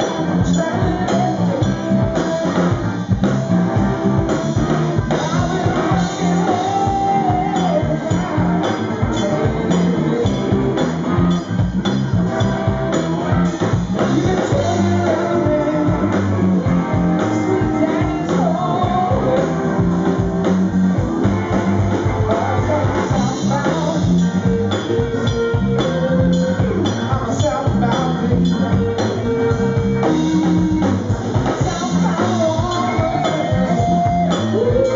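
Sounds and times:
man singing: 0.0 - 3.4, 4.1 - 11.7, 12.4 - 20.5, 21.8 - 34.9
live rock band playing: 0.0 - 34.9.

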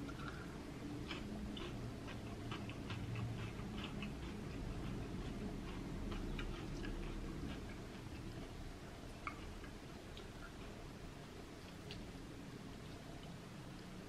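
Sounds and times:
person chewing food: 0.0 - 12.2.

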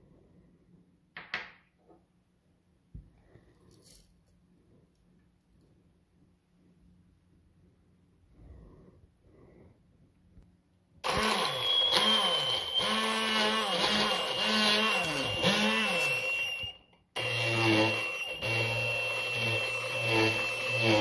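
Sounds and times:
stick blender motor running: 11.0 - 21.0.

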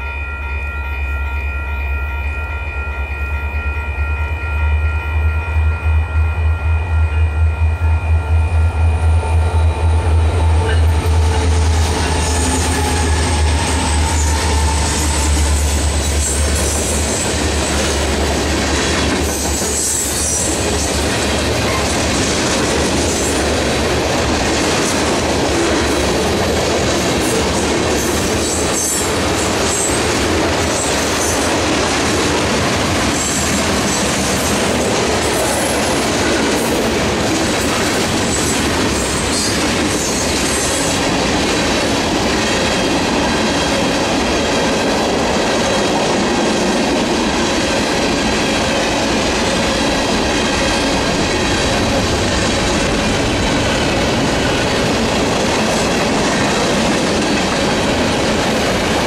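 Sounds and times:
diesel locomotive drone: 0.0 - 59.0
freight cars rolling on rails: 9.2 - 59.0.

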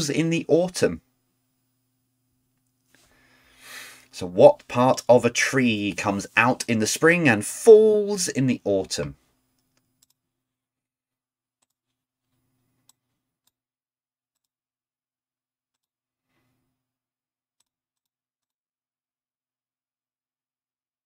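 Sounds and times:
low steady hum: 0.0 - 10.6.

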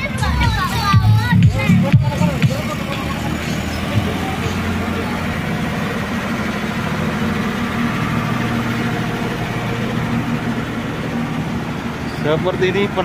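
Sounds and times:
engine idling: 0.0 - 13.0.

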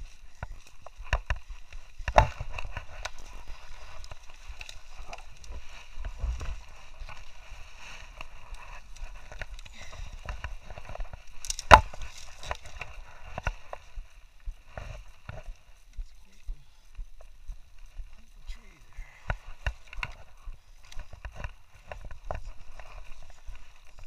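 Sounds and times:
footsteps through dry brush: 0.0 - 24.0
branch cracking loudly: 8.0 - 13.6.

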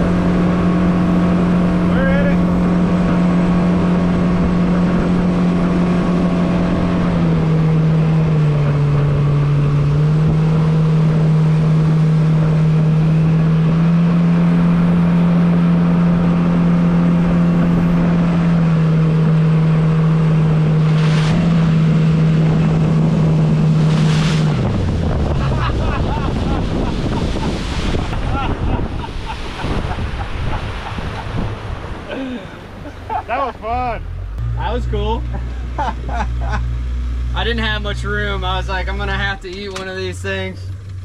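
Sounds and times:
outboard motor running: 0.0 - 41.0.

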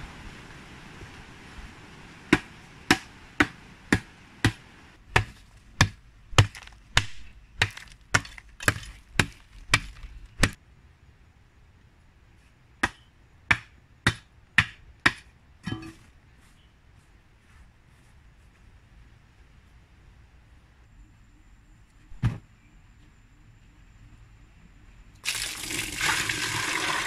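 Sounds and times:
digging tool striking stony earth: 2.3 - 10.6.

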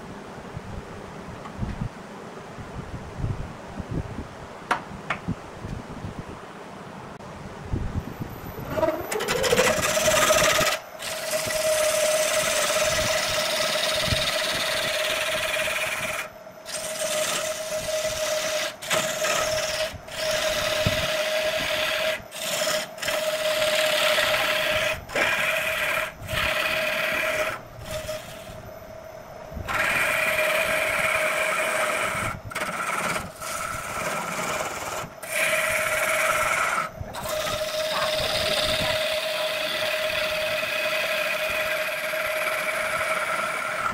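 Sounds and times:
wood lathe humming: 8.5 - 29.0, 29.6 - 43.9
turning tool scraping wood: 8.6 - 28.6, 29.7 - 43.9.

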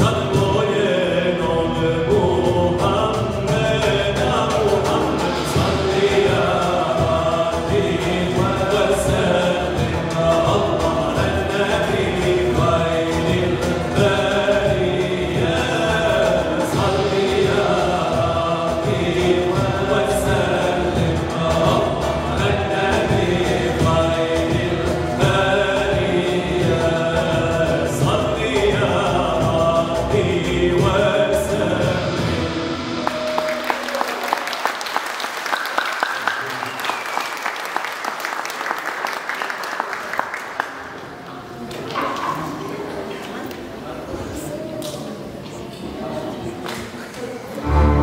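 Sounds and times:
male vocal group singing in harmony: 0.0 - 34.4
box drum: 1.8 - 33.6
end-blown flute: 32.2 - 34.9
audience applause: 32.9 - 43.4
keyboard: 47.5 - 48.0
long-necked lute: 47.6 - 48.0.

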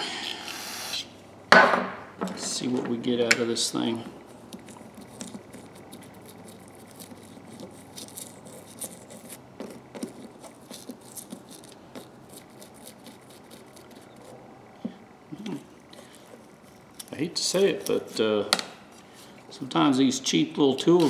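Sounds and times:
brush scrubbing metal: 4.6 - 14.4.

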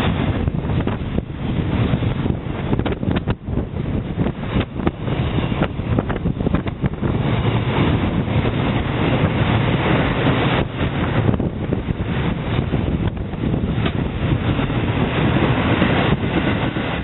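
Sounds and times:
freight train wheels rumbling on rail: 0.0 - 17.0
sharp clacks of train wheels: 0.0 - 17.0.

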